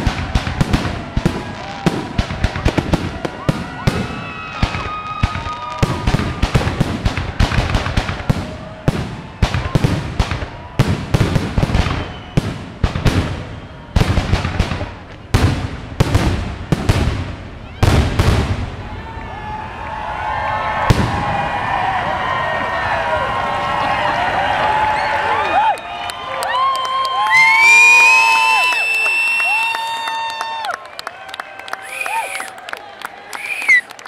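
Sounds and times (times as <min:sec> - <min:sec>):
crowd cheering: 0:00.0 - 0:15.4, 0:17.6 - 0:34.0
fireworks bursting: 0:00.0 - 0:18.8, 0:31.8 - 0:32.6, 0:33.3 - 0:33.9.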